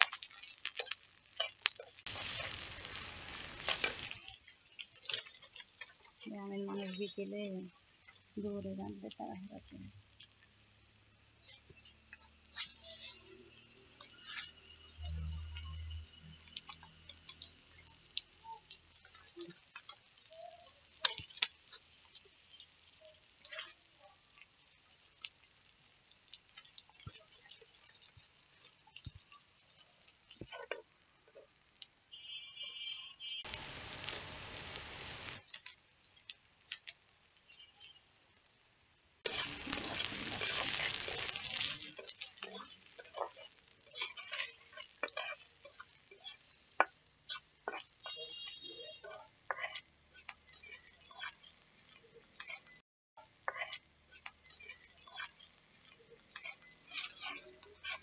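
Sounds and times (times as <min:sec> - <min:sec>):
stick fire crackling: 0:00.0 - 0:09.8, 0:33.4 - 0:36.9, 0:39.2 - 0:52.8, 0:53.5 - 0:58.0
metal spatula stirring: 0:00.0 - 0:38.6, 0:39.2 - 0:58.0
onions sizzling in hot oil: 0:00.0 - 0:58.0.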